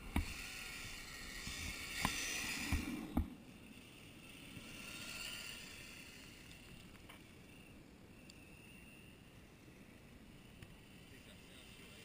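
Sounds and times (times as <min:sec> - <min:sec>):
tyres and grit hissing: 0:00.0 - 0:07.5.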